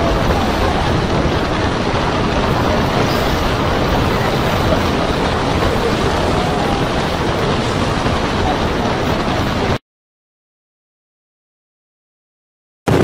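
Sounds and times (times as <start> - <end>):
heavy seas breaking and spraying: 0.0 - 9.8
storm wind: 0.0 - 9.8.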